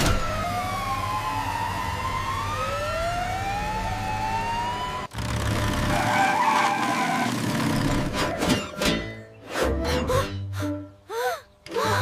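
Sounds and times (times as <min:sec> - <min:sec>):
cartoon sirens wailing: 0:00.0 - 0:05.1.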